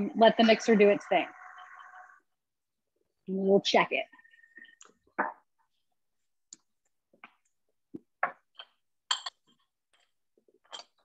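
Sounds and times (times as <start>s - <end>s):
dishes knocking and clinking: 8.0s - 9.7s.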